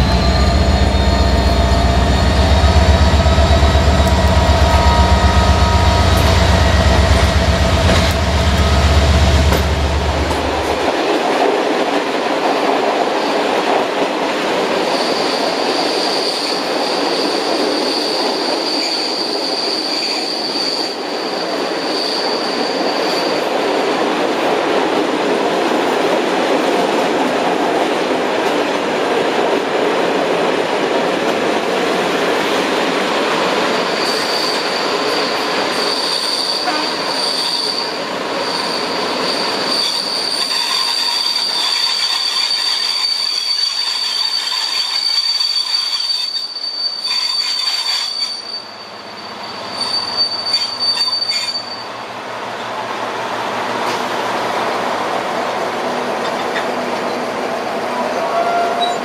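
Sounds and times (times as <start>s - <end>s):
high wheel squeal: 0.0s - 10.9s, 14.9s - 23.5s, 33.8s - 52.0s
train wheels clattering on rails: 0.0s - 48.5s, 53.4s - 57.6s.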